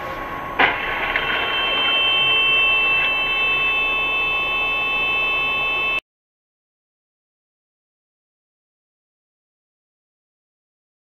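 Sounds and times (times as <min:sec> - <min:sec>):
steady high-pitched tone: 0:00.0 - 0:06.0
car crash: 0:00.6 - 0:02.8.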